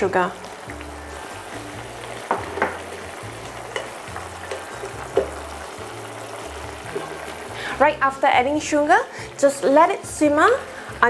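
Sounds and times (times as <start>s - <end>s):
sauce boiling and sizzling in pan: 0.0s - 11.0s
metal spoon clinking against pan: 3.7s - 5.3s.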